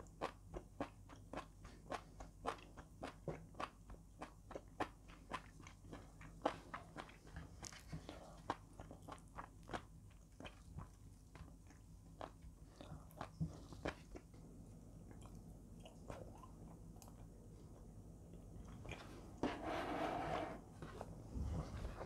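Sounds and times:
person chewing food: 0.0s - 19.4s.

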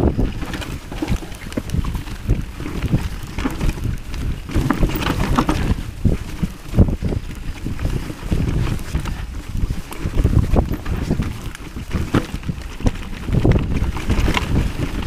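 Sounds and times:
bike knocks and rattles: 0.0s - 15.0s
bike tyres rumbling over dirt: 0.0s - 15.0s
wind on microphone: 0.0s - 15.0s.

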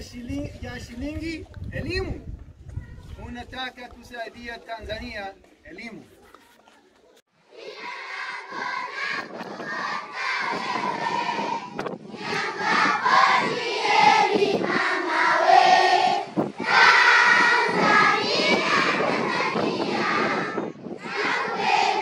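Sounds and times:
children singing in unison: 7.5s - 22.0s.

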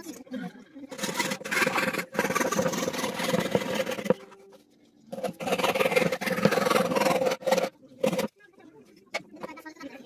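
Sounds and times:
power saw cutting wood: 1.0s - 4.1s, 5.2s - 8.3s.

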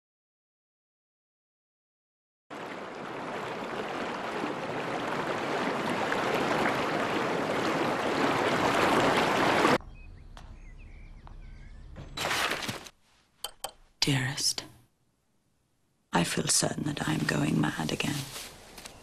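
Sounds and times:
rushing river water: 2.5s - 9.8s.

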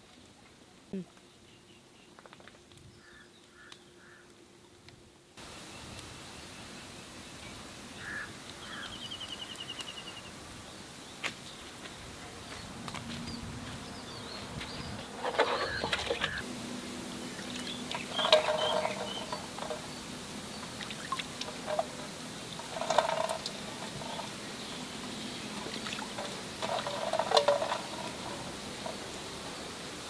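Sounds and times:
water splashing: 17.3s - 29.6s.

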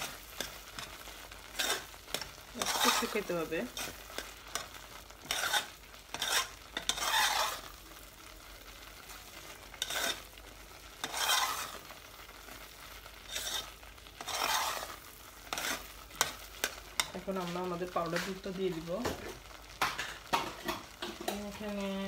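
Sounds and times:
utensil scraping a saucepan: 0.0s - 7.8s, 9.4s - 10.3s, 10.9s - 12.6s, 13.2s - 18.5s.

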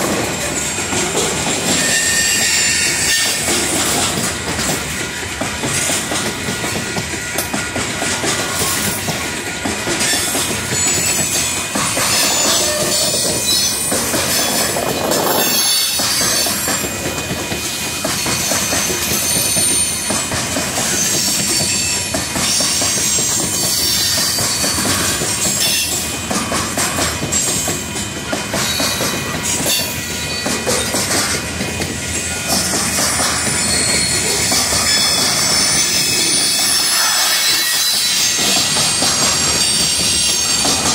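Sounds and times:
train wheels rumbling on rails: 0.0s - 40.9s
high wheel squeals: 1.5s - 3.5s, 10.0s - 16.8s, 33.3s - 40.9s.

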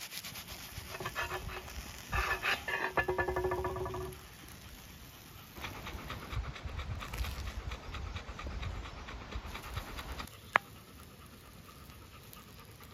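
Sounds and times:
dog panting: 5.5s - 12.9s.

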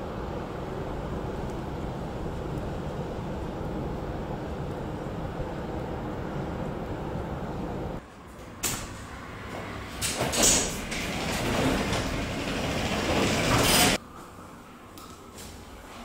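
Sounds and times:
steady outdoor rumble: 0.0s - 14.0s.

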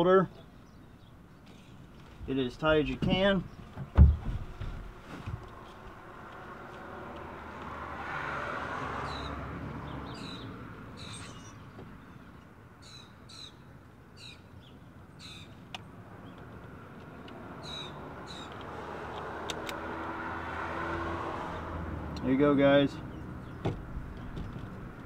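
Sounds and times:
high sharp bird calls: 9.0s - 15.6s, 17.6s - 18.6s
sharp clicks: 18.5s - 19.8s.

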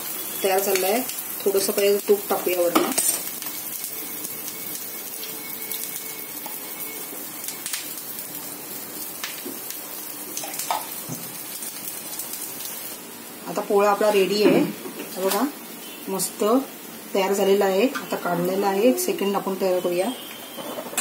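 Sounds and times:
sharp pops of frying: 0.0s - 8.3s, 9.0s - 13.0s
pancake sizzling in a pan: 0.0s - 21.0s.

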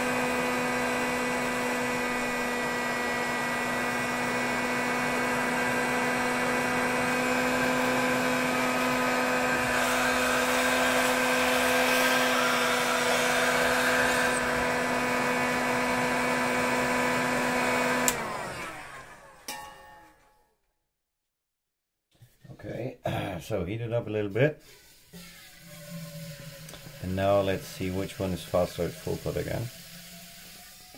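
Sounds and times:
heat gun fan hum: 0.0s - 19.2s, 24.9s - 30.9s.

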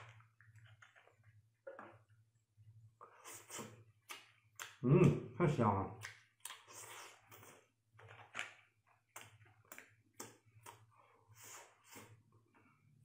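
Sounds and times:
person chewing and sucking: 3.0s - 4.8s, 6.0s - 7.7s, 9.1s - 12.2s.

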